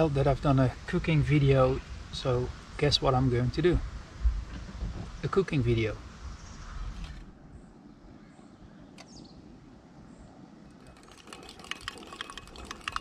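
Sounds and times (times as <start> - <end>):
faint bird chirp: 6.3 - 10.5
utensil clinking in metal pot: 10.9 - 13.0.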